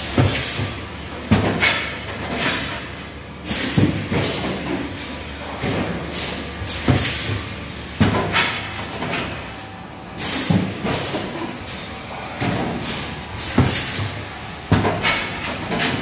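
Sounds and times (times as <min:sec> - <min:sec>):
pneumatic actuator clunks: 0:00.0 - 0:02.9, 0:03.5 - 0:09.4, 0:10.2 - 0:16.0
sharp hiss of exhausting air: 0:10.2 - 0:10.7.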